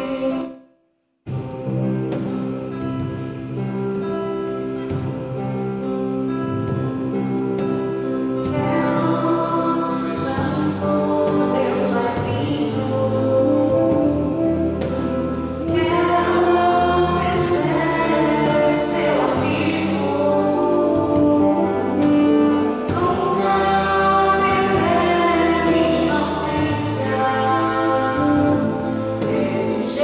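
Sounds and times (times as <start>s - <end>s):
guitar: 0.0s - 0.7s, 1.3s - 30.0s
bass guitar: 1.3s - 30.0s
voices singing a hymn: 8.4s - 30.0s.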